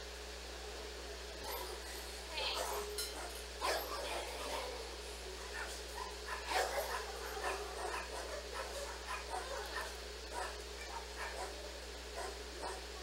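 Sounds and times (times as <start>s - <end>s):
dog barking: 2.4s - 13.0s.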